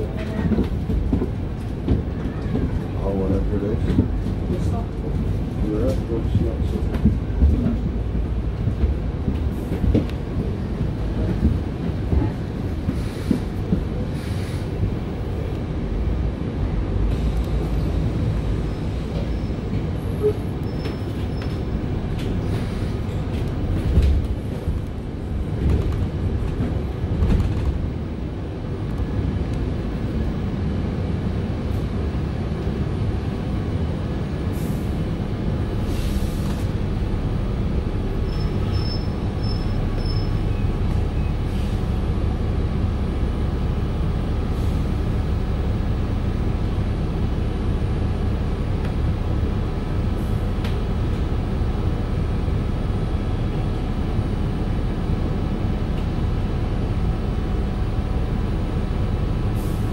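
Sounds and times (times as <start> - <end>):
bus body clicks and knocks: 0.0 - 14.2, 19.1 - 29.8, 50.5 - 51.9
bus drivetrain and road rumble: 0.0 - 59.9.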